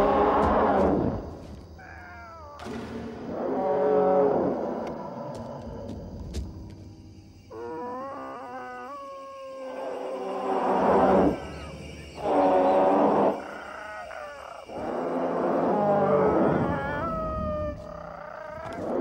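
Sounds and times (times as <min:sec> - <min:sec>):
dinosaur calls: 0:12.2 - 0:19.0.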